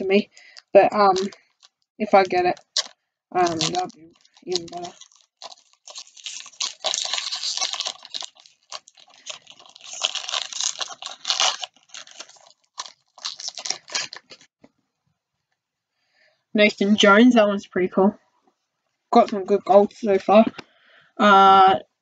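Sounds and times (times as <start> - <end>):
wrapper tearing and crinkling: 0.0 - 14.5.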